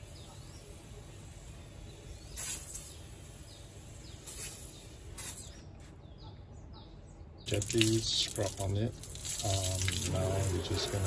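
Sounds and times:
faint bird chirps: 0.0 - 8.0.

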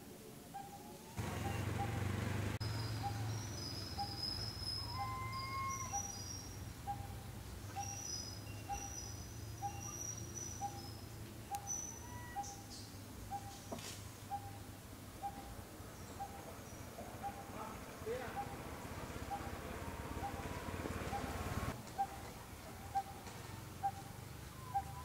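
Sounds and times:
birds whistling and chirping: 0.5 - 18.6, 19.2 - 22.2, 22.8 - 23.2, 23.8 - 25.0
bird repeating low note: 0.6 - 10.9, 16.1 - 22.2
low steady rumble: 14.1 - 25.0.

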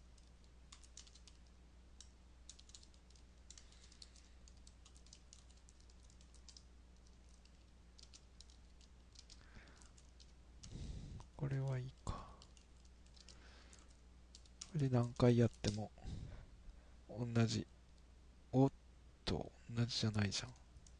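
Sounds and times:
low steady hum: 0.0 - 20.9
typing on computer keyboard: 0.1 - 10.4, 12.2 - 15.8.

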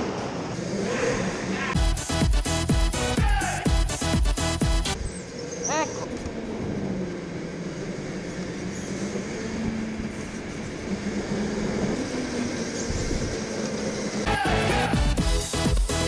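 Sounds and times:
tyre and chassis noise: 0.0 - 16.0
go-kart motor hum: 5.0 - 16.0.

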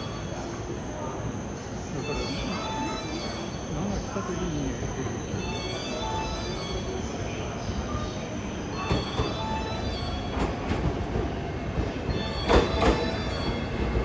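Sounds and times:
train rumble: 0.0 - 14.0
train wheels clacking over rail joints: 10.3 - 14.0.

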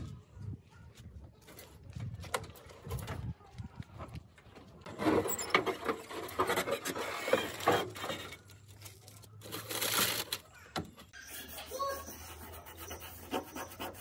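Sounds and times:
branches rustling and scraping: 4.9 - 10.6.

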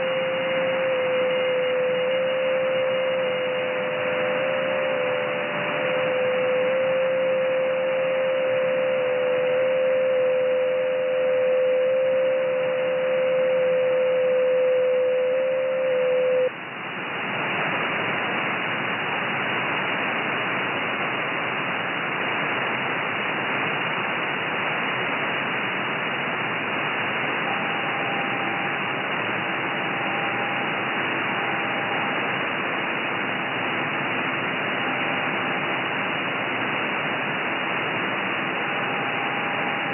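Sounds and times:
faint whistle-like digital tones: 0.0 - 16.5, 27.4 - 28.8, 29.8 - 30.7, 31.3 - 32.2
radio hiss: 0.0 - 39.9.

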